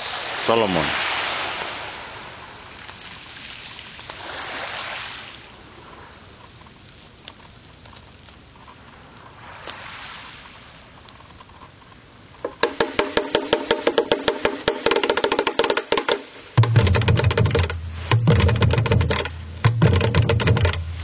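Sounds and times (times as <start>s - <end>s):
small waves washing on shore: 0.0s - 21.0s
faint clicks: 6.4s - 9.8s.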